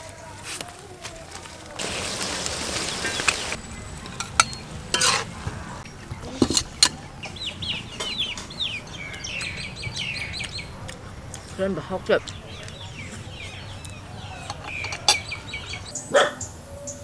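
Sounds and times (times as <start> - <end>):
peppers sizzling in a wok: 1.8 - 3.6
bird chirping: 2.3 - 17.0
utensils and dishes clinking: 3.0 - 5.4, 6.2 - 9.0, 14.4 - 15.5.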